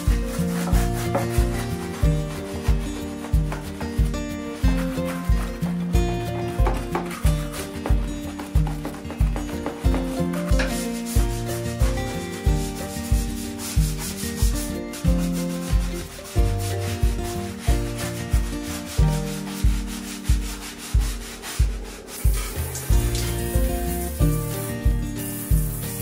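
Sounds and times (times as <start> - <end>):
background music with beat: 0.0 - 26.0
brush scrubbing wet tiles: 0.0 - 26.0.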